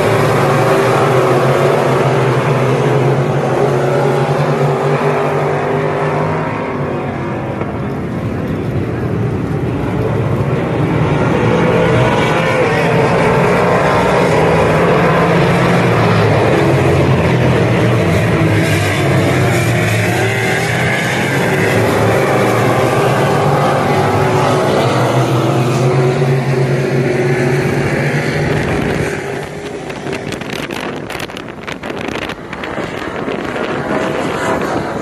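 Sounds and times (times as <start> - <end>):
race car engines running hard: 0.0 - 35.0
wind buffeting microphone: 27.3 - 35.0.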